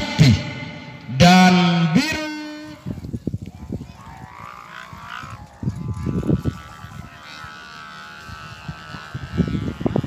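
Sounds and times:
kite hummers droning: 0.0s - 10.0s
wind gusts on microphone: 2.6s - 10.0s.

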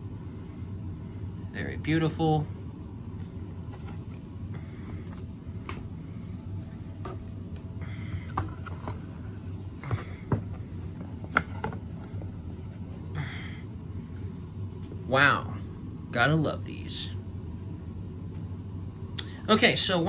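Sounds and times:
low hum: 0.0s - 20.0s
cardboard sliding rub: 6.4s - 7.8s.

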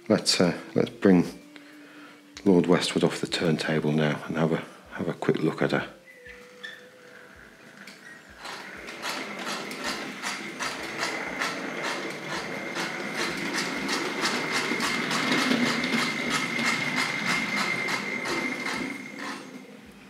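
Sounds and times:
steady high whine: 0.0s - 20.0s
model locomotive chuffing: 8.4s - 20.0s.

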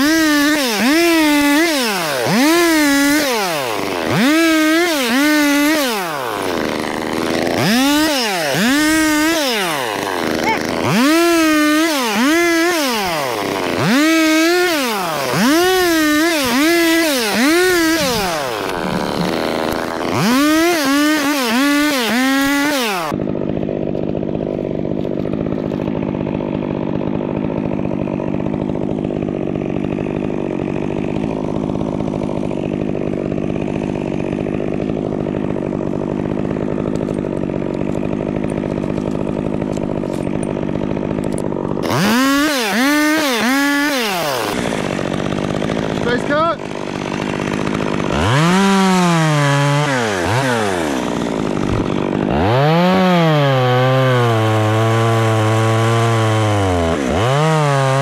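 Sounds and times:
chainsaw revving while cutting: 0.0s - 58.0s.

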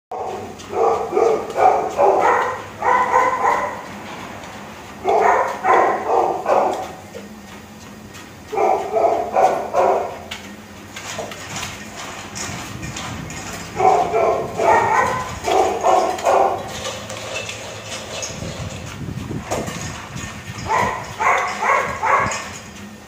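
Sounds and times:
dog barking: 0.2s - 3.9s, 5.0s - 7.0s, 8.5s - 10.2s, 13.8s - 16.7s, 20.6s - 22.4s.

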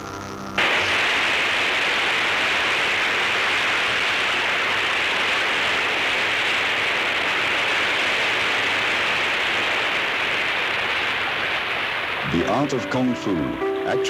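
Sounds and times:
music: 0.0s - 0.6s, 12.3s - 14.0s
loud steady rushing hiss: 0.0s - 14.0s.

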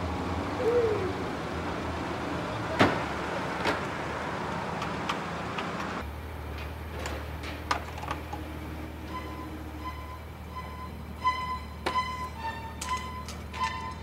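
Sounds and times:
car doors slamming: 2.7s - 4.0s.

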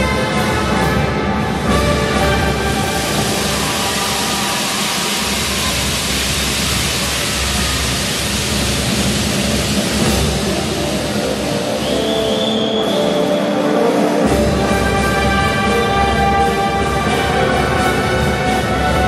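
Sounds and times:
folk music playing: 0.0s - 3.8s, 10.8s - 19.0s
crowd applauding and cheering: 0.0s - 19.0s.

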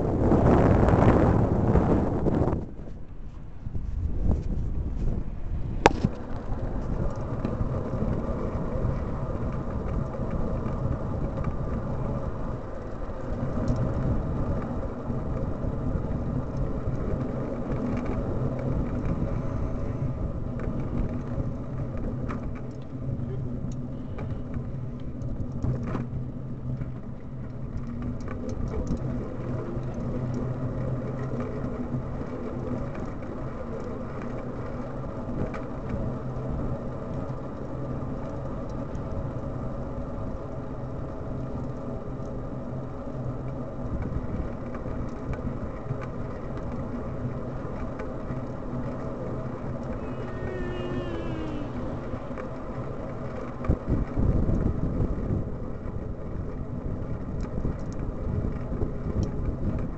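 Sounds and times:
wind on microphone: 0.0s - 26.1s, 48.9s - 59.9s
low hum: 0.0s - 56.8s
bicycle tyres rumbling on asphalt: 0.0s - 59.9s.

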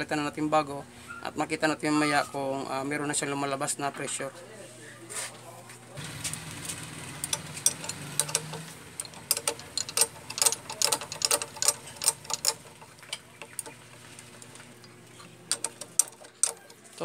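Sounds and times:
wrench clicking on metal: 7.2s - 13.8s, 15.2s - 16.8s.

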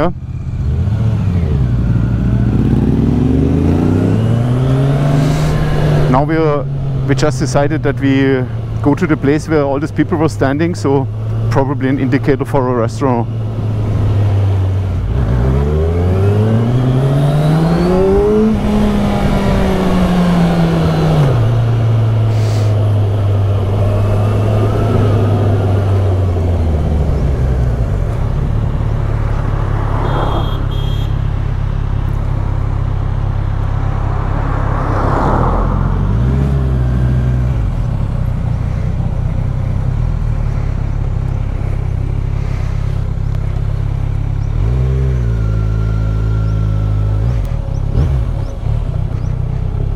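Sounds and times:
motorcycle engine revving: 0.0s - 31.7s, 34.1s - 49.9s.

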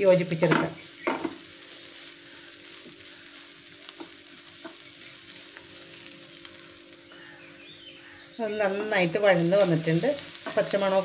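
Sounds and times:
faint steady hum: 0.0s - 11.0s
food sizzling in a frying pan: 0.0s - 11.0s
wooden spatula scraping a pan: 0.2s - 6.6s, 8.6s - 11.0s.

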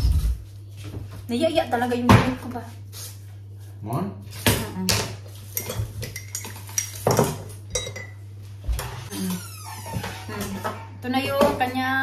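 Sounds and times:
dishes clinking: 4.9s - 8.2s.

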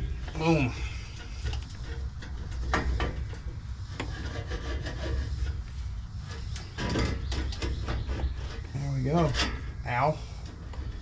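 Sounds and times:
metal scraping and rubbing: 0.0s - 11.0s.

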